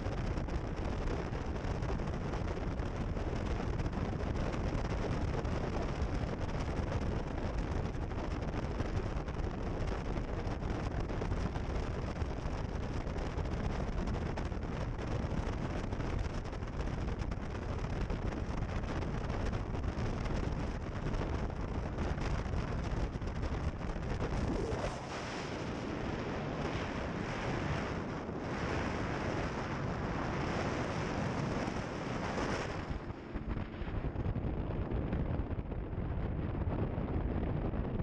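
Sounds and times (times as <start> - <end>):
wind buffeting microphone: 0.0 - 38.0
boat rumbling: 10.1 - 37.1.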